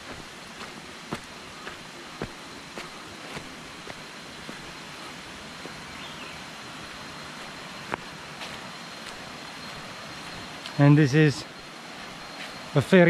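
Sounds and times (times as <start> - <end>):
footsteps on leaves: 0.0 - 5.8, 8.0 - 10.7
jungle ambience hiss: 0.0 - 13.0.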